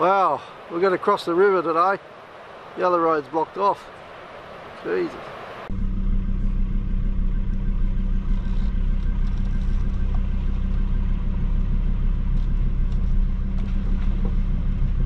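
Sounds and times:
engine droning at low revs: 0:05.5 - 0:15.0.

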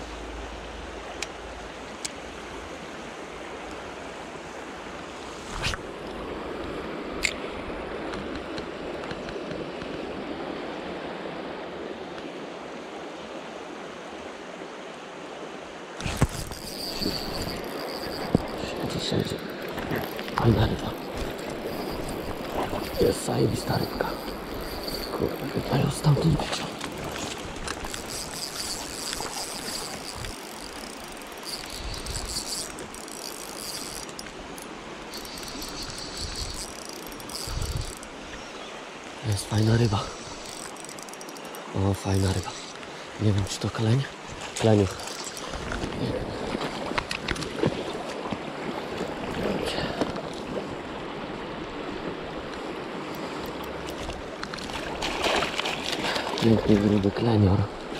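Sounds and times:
river water rushing: 0:00.0 - 0:57.9
fishing reel ticking and whirring: 0:16.1 - 0:38.2, 0:39.7 - 0:42.4, 0:44.9 - 0:45.8
wind rumble on microphone: 0:35.4 - 0:38.3.

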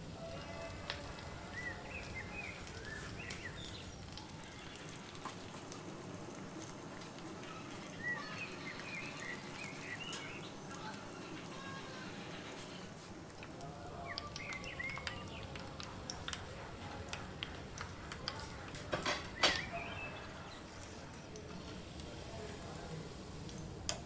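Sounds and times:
oil sizzling and crackling: 0:00.0 - 0:24.0
bird-like chirps: 0:14.1 - 0:15.6.

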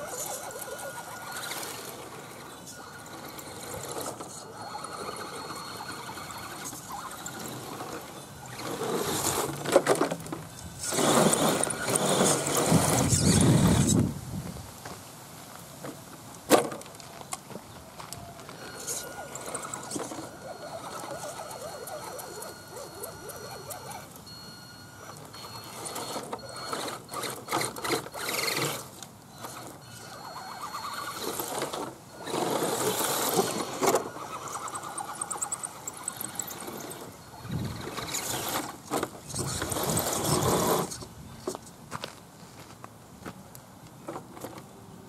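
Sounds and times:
tyres churning through mud: 0:00.0 - 0:14.0, 0:18.5 - 0:41.1
electric motor whining: 0:00.0 - 0:14.1, 0:18.4 - 0:41.1.

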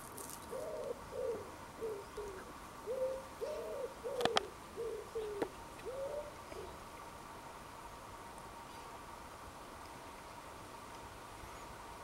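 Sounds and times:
pigeon cooing: 0:00.5 - 0:06.8.

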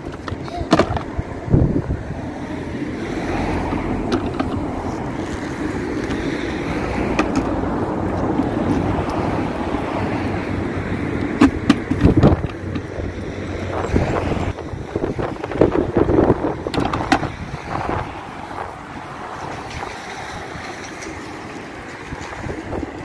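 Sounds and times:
wind buffeting microphone: 0:00.0 - 0:23.0
hollow plastic knocks: 0:11.4 - 0:12.9.

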